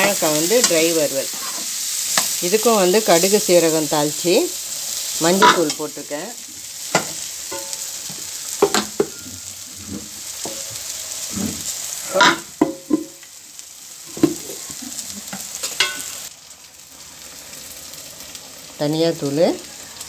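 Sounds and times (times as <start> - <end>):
food sizzling in hot oil: 0.0 - 20.0
metal spoon scraping pan: 0.1 - 2.4, 5.4 - 5.8.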